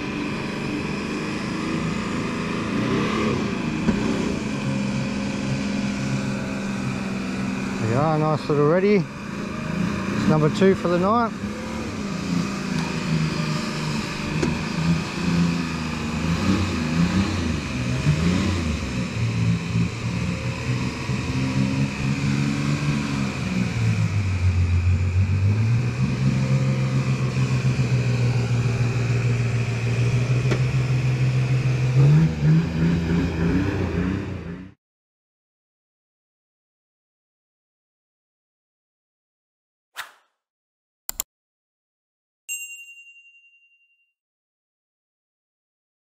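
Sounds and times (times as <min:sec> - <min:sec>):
engine running: 0:00.0 - 0:34.8.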